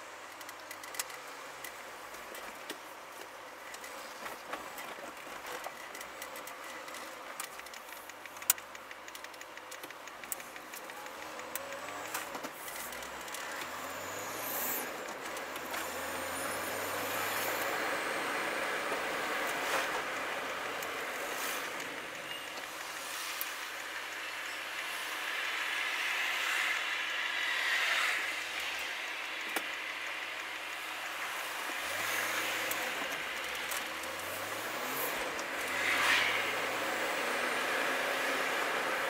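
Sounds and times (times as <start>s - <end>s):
road noise: 0.0s - 39.0s
small clicks and rattles: 0.2s - 14.0s, 28.6s - 35.7s
car engine accelerating: 10.8s - 23.2s, 31.4s - 39.0s.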